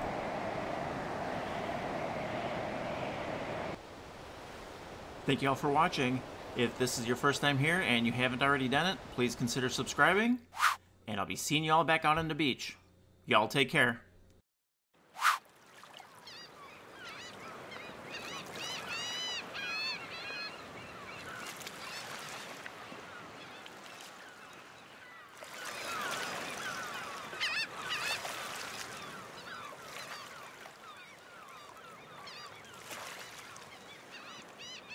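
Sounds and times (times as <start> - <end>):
surf: 0.0 - 10.8, 15.2 - 34.9
gulls calling: 16.0 - 34.9.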